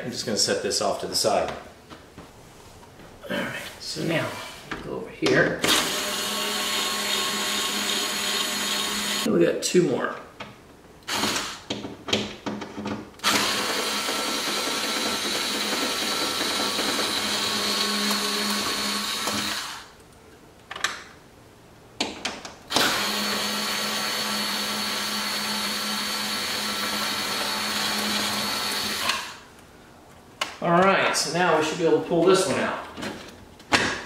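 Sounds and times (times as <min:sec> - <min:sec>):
power screwdriver motor whine: 0:22.7 - 0:29.4.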